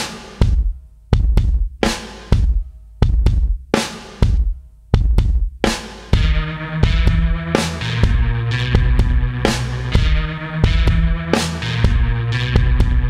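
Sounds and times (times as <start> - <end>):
drum kit beat: 0.0 - 13.0
bass and guitar notes: 6.2 - 13.0.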